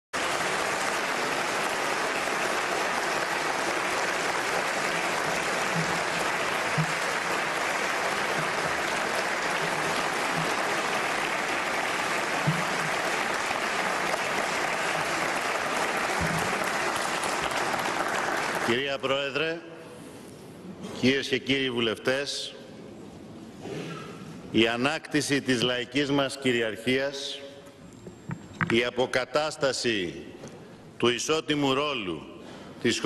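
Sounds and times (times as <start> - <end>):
large crowd applauding: 0.1 - 18.8.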